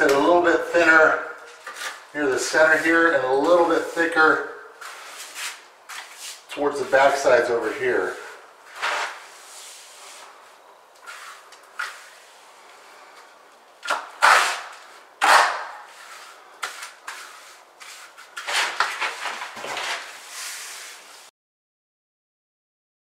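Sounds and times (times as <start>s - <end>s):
trowel scraping wet mortar: 11.0s - 12.2s, 13.9s - 21.0s.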